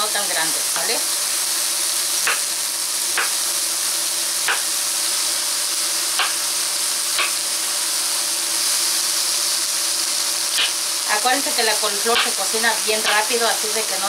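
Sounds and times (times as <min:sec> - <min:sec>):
vegetables sizzling in pan: 0:00.0 - 0:14.0
knife chopping on wooden board: 0:02.3 - 0:02.5, 0:03.2 - 0:03.4, 0:06.2 - 0:06.4, 0:07.2 - 0:07.4.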